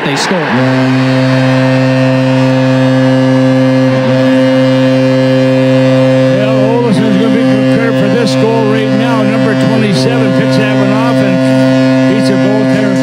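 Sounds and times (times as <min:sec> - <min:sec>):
commentator speaking: 0:00.0 - 0:00.8, 0:06.3 - 0:13.0
crowd cheering: 0:00.0 - 0:11.4
goal horn blast: 0:00.0 - 0:13.0.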